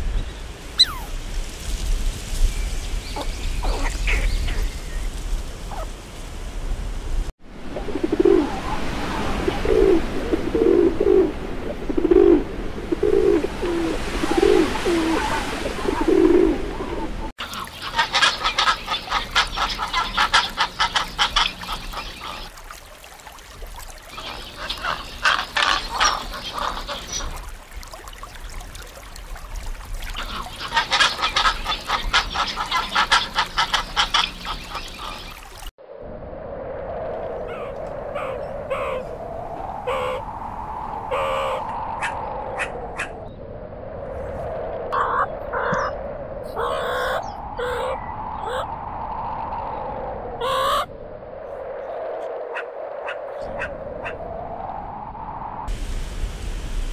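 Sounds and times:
pigeons cooing: 0:07.8 - 0:22.5, 0:37.5 - 0:39.1.

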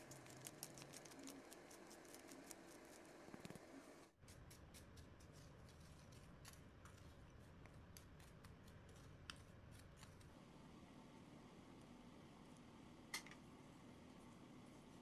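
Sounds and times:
spoon scraping salt in bowl: 0:04.3 - 0:10.2.

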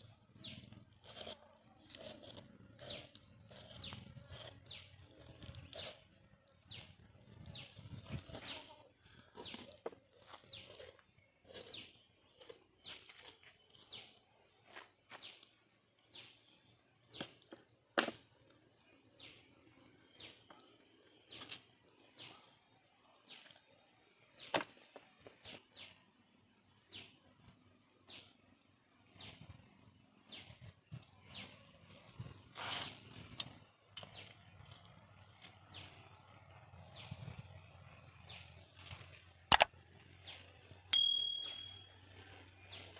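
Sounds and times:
small bird chirping: 0:00.0 - 0:14.2, 0:38.2 - 0:42.9
sharp click: 0:39.5 - 0:39.7.

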